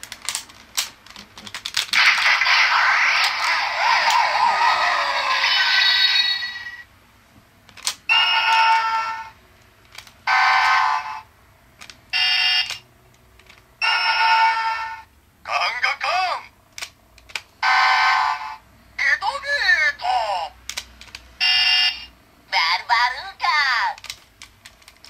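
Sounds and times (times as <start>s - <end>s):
toy electronic sound effects: 2.0s - 6.8s, 8.1s - 9.3s, 21.4s - 22.1s.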